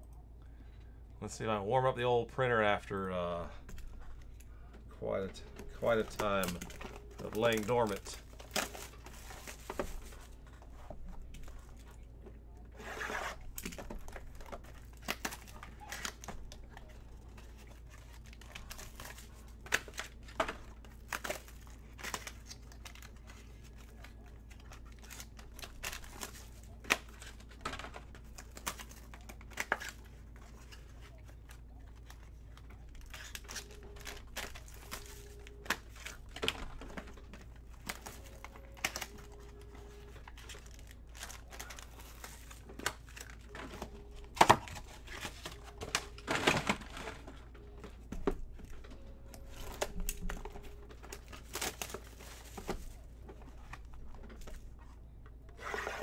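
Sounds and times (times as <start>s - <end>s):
plastic wrapping crinkling and tearing: 5.6s - 54.9s.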